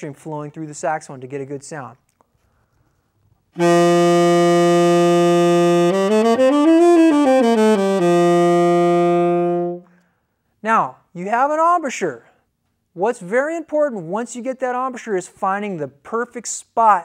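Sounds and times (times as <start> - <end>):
tenor saxophone playing: 3.6 - 10.0.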